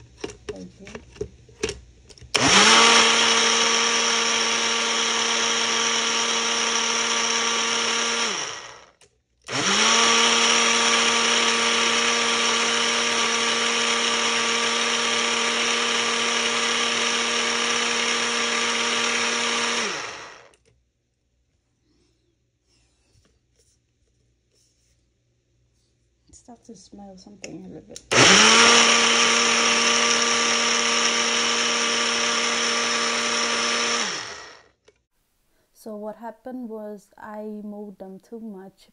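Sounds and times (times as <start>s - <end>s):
blender motor whining: 2.3s - 20.6s, 28.0s - 34.8s.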